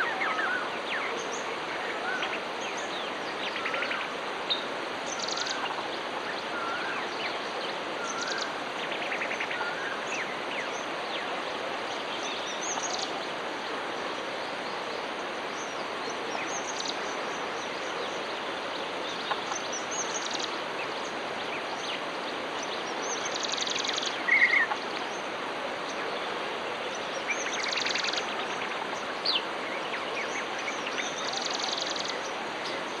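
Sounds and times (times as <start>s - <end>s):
background hiss: 0.0s - 33.0s
birds chirping and trilling: 0.0s - 33.0s.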